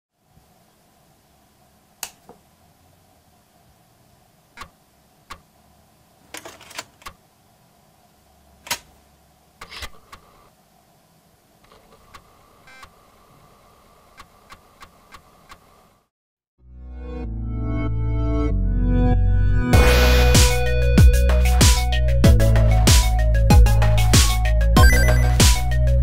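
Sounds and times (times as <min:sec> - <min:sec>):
plastic clicks and scraping rattles: 0:06.3 - 0:07.2
disk drive whine: 0:09.6 - 0:10.6, 0:11.6 - 0:16.1.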